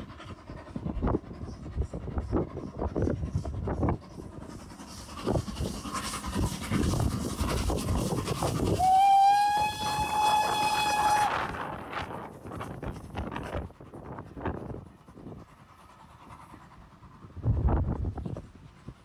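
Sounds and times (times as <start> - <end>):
steam locomotive chuffing: 0.0 - 19.0
steam whistle: 8.7 - 11.6.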